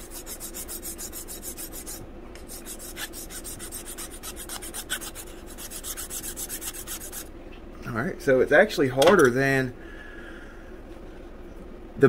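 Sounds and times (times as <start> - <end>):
metal file rasping on putty: 0.0 - 7.3.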